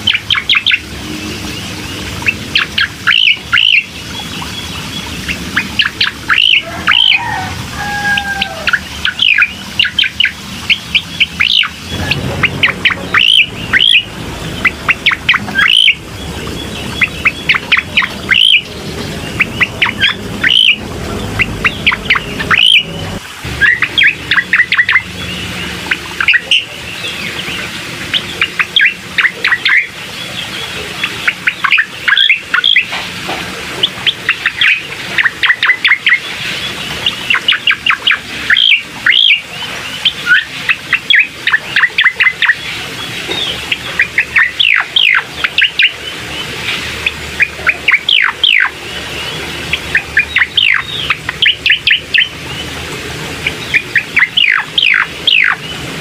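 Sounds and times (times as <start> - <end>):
bird song sharp high notes: 0.0 - 32.9, 47.4 - 52.7.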